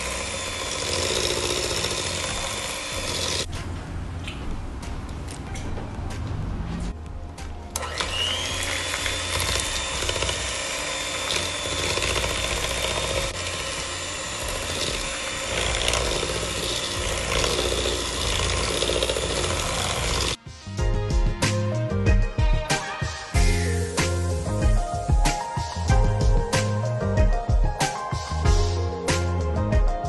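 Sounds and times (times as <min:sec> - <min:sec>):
electric hand mixer whining: 0:00.0 - 0:03.5, 0:07.8 - 0:20.4.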